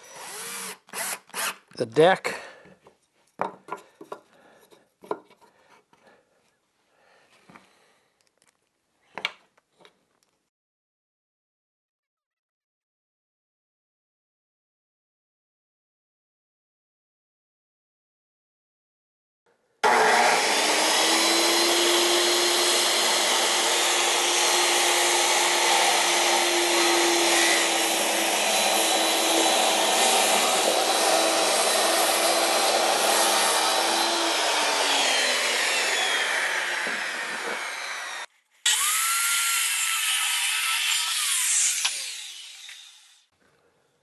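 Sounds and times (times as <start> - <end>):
circular saw cutting wood: 0.0 - 1.6, 19.8 - 43.3.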